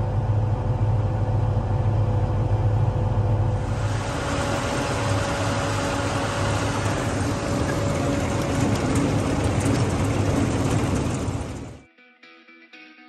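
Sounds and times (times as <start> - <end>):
faint steady whine: 0.0 - 11.8
machinery running: 0.0 - 11.8.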